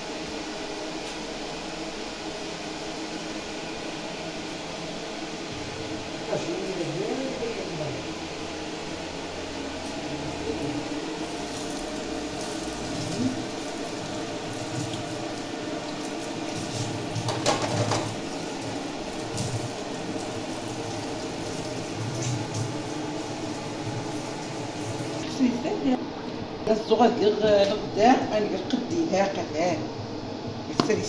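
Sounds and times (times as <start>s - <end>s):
tap water running in sink: 9.3s - 25.4s
clatter in sink: 16.6s - 18.2s.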